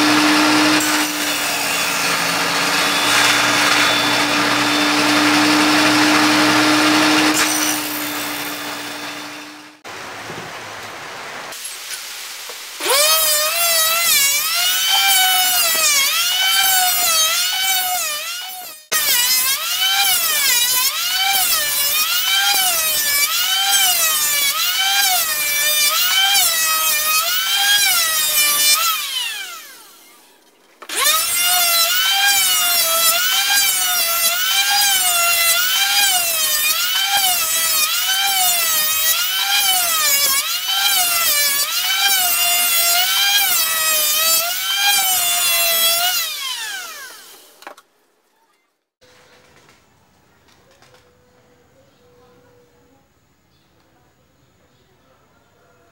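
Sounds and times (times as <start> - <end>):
electric planer whining: 0.0 - 9.8, 12.8 - 30.2, 30.8 - 47.6.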